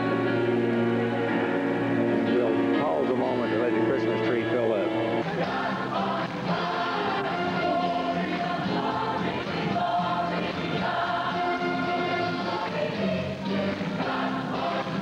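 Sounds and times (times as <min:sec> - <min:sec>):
mixed choir singing: 0:05.0 - 0:15.0.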